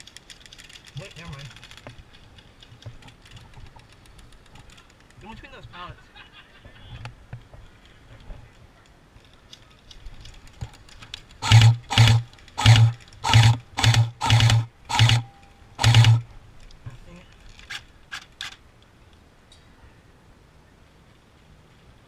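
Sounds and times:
airsoft rifle full-auto bursts: 0:11.4 - 0:16.3.

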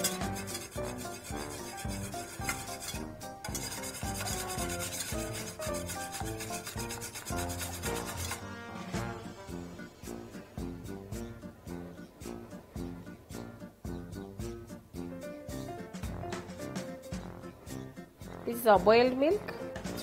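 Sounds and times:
whisk scraping metal bowl: 0:00.0 - 0:10.3
background music: 0:00.0 - 0:20.0.

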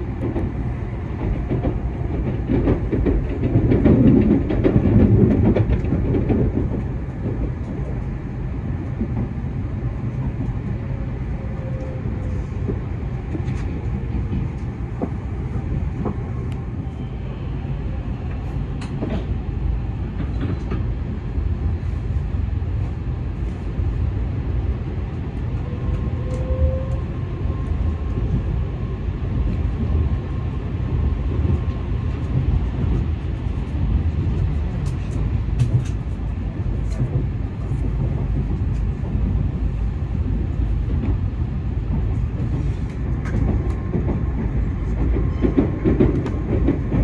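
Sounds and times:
train running deep rumble: 0:00.0 - 0:47.0.

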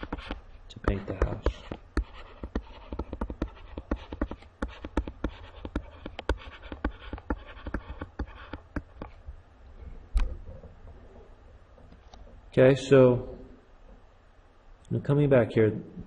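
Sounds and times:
faint stylus scratching: 0:00.0 - 0:09.2.

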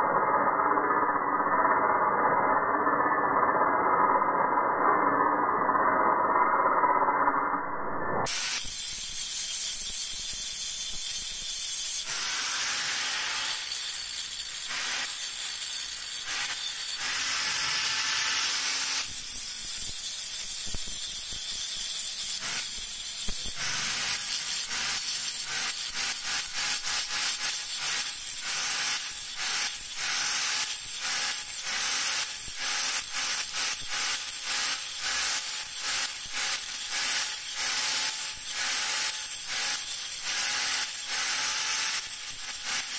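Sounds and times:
angle grinder grinding steel: 0:08.2 - 0:42.9.

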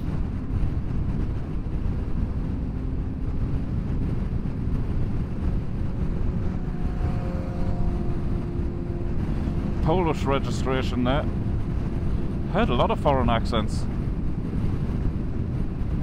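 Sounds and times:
motorcycle engines rumbling: 0:00.0 - 0:16.0
wind noise on microphone: 0:00.0 - 0:16.0.

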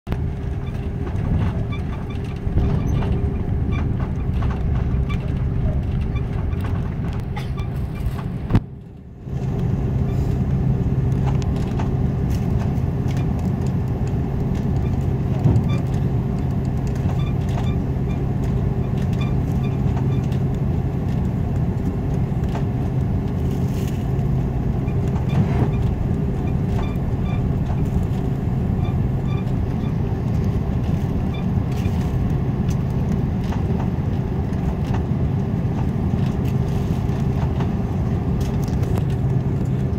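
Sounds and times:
aircraft engines humming: 0:00.1 - 0:39.9
cabin air system: 0:00.2 - 0:39.9
light knocks and rattles: 0:00.3 - 0:08.7.

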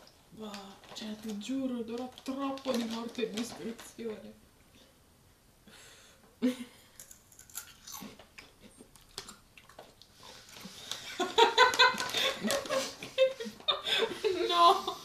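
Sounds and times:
crunching chips being chewed: 0:07.0 - 0:11.1
people laughing: 0:11.1 - 0:15.0.

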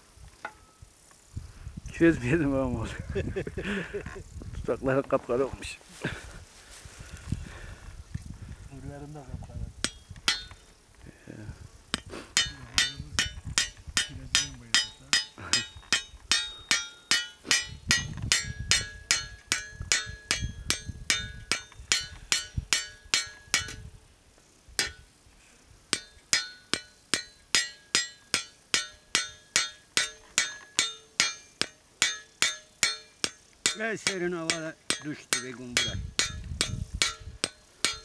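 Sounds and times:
hammer tapping on scythe blade: 0:09.8 - 0:10.6, 0:11.9 - 0:23.8, 0:24.8 - 0:25.0, 0:25.9 - 0:38.0.

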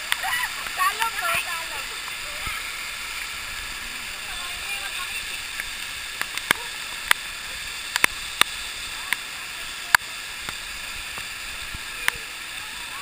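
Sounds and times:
waterfall hissing: 0:00.0 - 0:13.0
water drops clicking on microphone: 0:05.5 - 0:09.3.

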